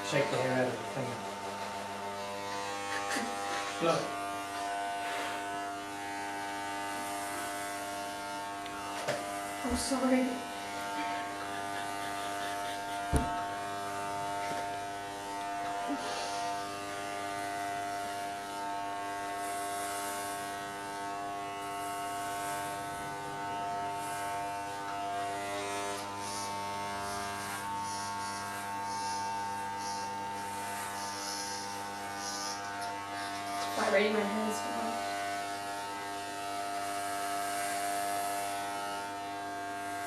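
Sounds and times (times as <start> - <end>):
electric hair clippers buzzing: 0.0 - 40.0
hiss of hair cutting: 0.0 - 40.0.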